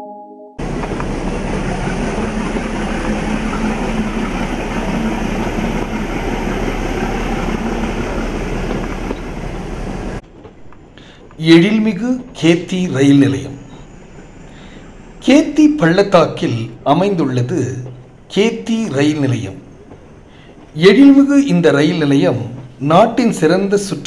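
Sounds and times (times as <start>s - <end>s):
rushing air: 0.6s - 11.4s
train wheels rumbling on rail: 0.6s - 24.0s.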